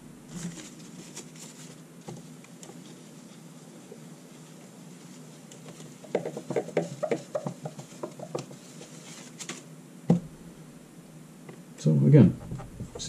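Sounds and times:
cloth rubbing whiteboard: 0.3 - 9.7.

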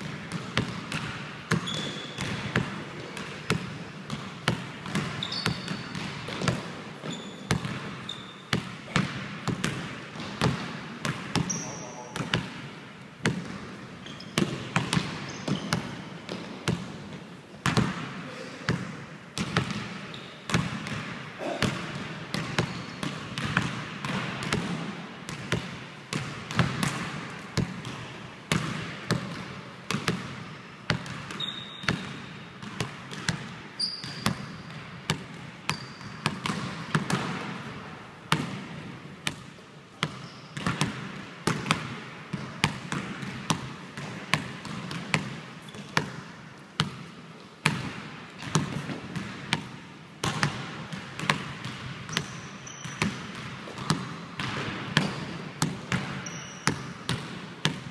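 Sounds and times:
basketball bouncing on wooden floor: 0.0 - 12.6, 13.2 - 17.0, 17.6 - 37.6, 38.3 - 46.2, 47.6 - 57.9
sneakers squeaking on wood: 1.6 - 2.2, 5.1 - 6.4, 7.0 - 8.5, 11.4 - 12.1, 14.0 - 14.6, 15.2 - 16.0, 31.4 - 32.0, 33.8 - 34.4, 35.7 - 36.2, 40.2 - 40.6, 52.1 - 53.1, 56.2 - 56.7.

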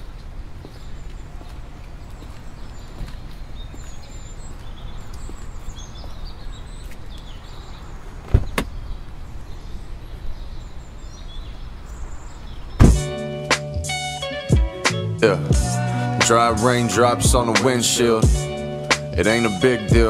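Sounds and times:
car door knocks: 12.8 - 13.1.

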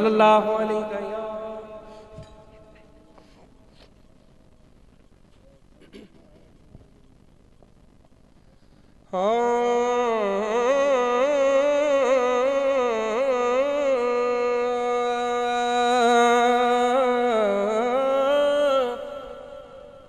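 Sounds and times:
man singing unaccompanied: 0.0 - 2.7, 9.1 - 20.0.

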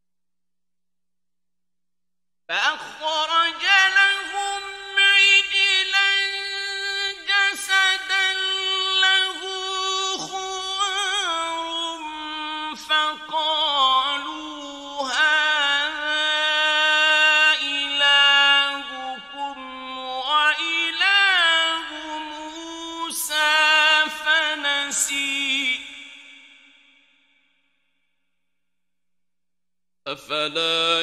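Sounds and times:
man chanting melodically: 2.5 - 26.1, 30.1 - 31.0.

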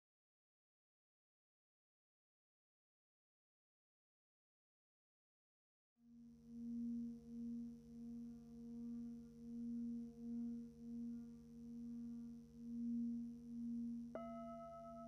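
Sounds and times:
singing bowl drone: 6.0 - 15.0.

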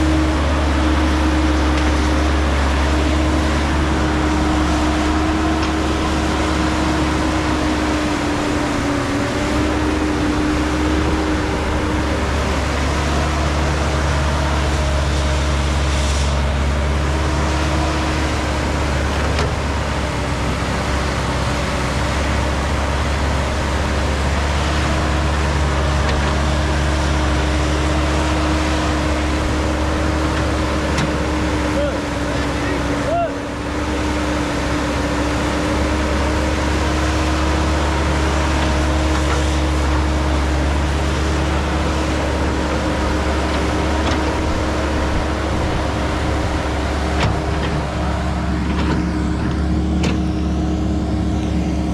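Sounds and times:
excavator diesel engine: 0.0 - 51.9
steady whine: 34.8 - 51.9.

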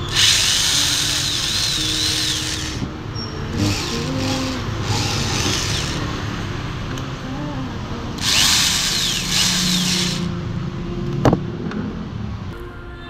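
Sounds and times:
electric drill running: 0.0 - 2.8, 3.5 - 6.0, 8.2 - 10.3.

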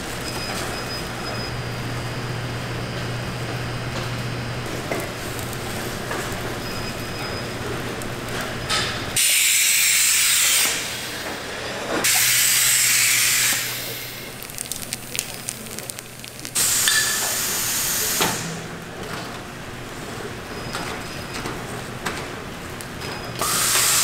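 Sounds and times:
low machine hum: 0.0 - 9.2, 10.9 - 23.4
machinery venting loud hissing: 9.2 - 20.4, 23.4 - 24.0.

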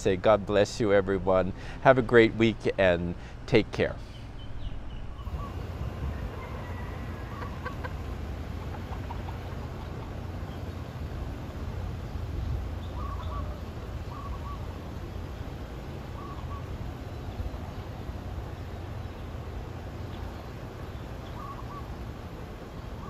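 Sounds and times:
low outdoor rumble: 0.0 - 23.0
two-note bird calls: 12.8 - 14.9, 16.1 - 16.8, 21.2 - 22.0.

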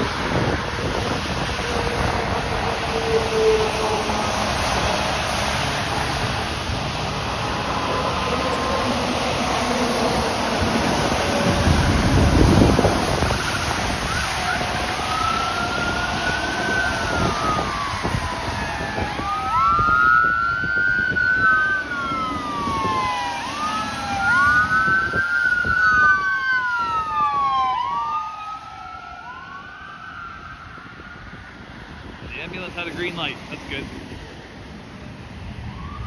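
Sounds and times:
tyres hissing on wet road: 0.0 - 20.4, 30.8 - 35.7
ambulance siren wailing: 0.0 - 34.3, 35.2 - 36.0.

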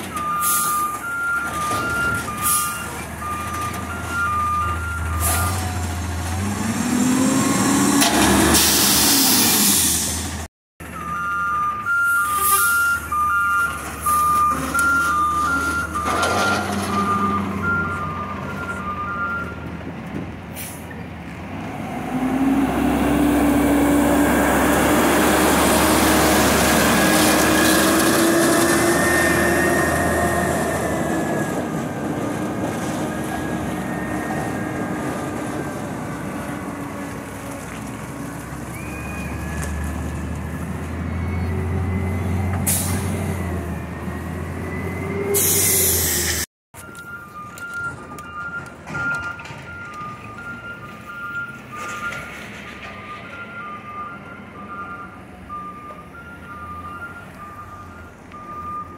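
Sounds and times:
truck reverse alarm beeping: 0.0 - 7.9, 10.8 - 19.7, 23.0 - 36.9, 41.0 - 58.9
truck engine revving: 0.0 - 19.9, 21.2 - 46.5.

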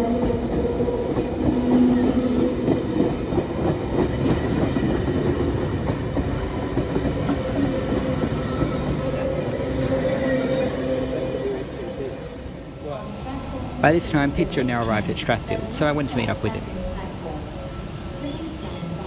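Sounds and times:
train wheels rumbling and clattering: 0.0 - 10.7.

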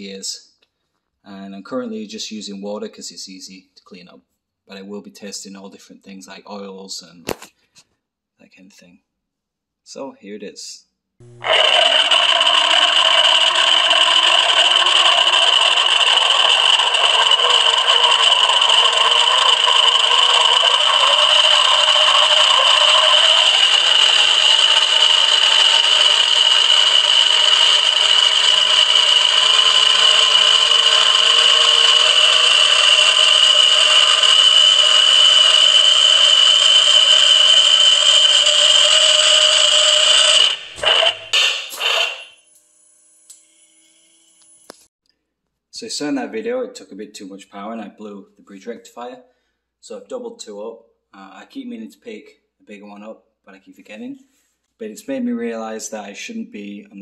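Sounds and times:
gears whining in water: 11.2 - 42.5.

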